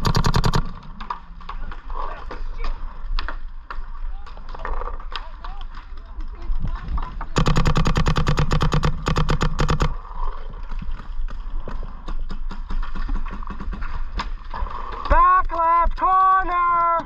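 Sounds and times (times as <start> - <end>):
paintball marker firing rapidly: 0.0 - 1.3, 7.4 - 10.0, 12.2 - 14.2
quieter shots and pops: 0.0 - 1.9, 7.0 - 10.0, 11.2 - 16.8.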